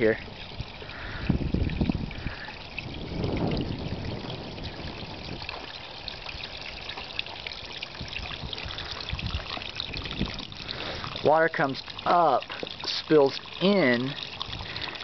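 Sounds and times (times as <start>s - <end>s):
low rumbles: 0.0s - 6.8s
water trickling and splashing: 0.0s - 15.0s.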